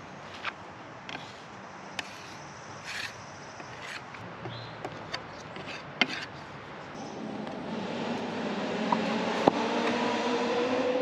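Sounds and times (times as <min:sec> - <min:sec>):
glue spreader scraping plywood: 0:02.0 - 0:04.1.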